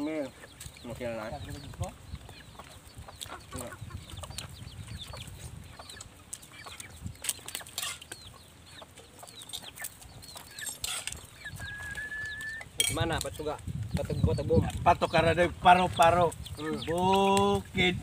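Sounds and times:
chickens calling: 0.0s - 18.0s
spoons clinking on plates: 7.7s - 8.1s, 10.6s - 11.3s, 12.8s - 13.2s.

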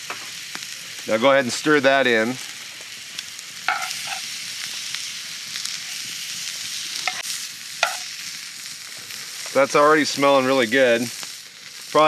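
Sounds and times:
food sizzling in a skillet: 0.0s - 12.0s
spatula scraping a pan: 3.7s - 4.4s.

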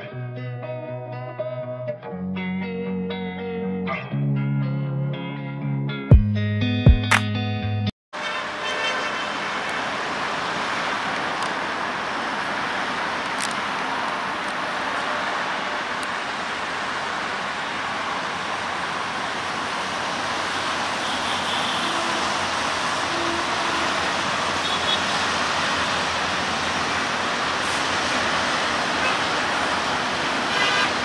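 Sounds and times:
outdoor background roar: 7.0s - 31.0s.

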